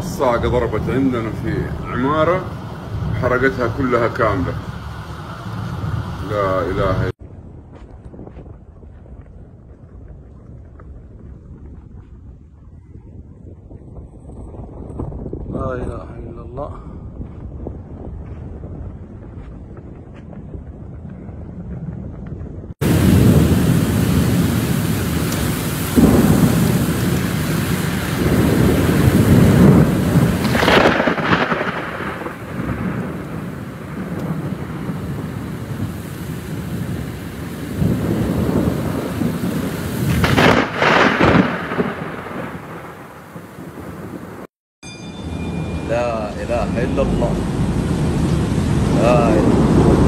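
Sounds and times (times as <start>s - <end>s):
heavy rain: 0.0s - 7.2s, 22.8s - 44.5s, 45.8s - 50.0s
thunder rumbling: 0.0s - 44.5s, 45.3s - 50.0s
wind: 0.0s - 50.0s.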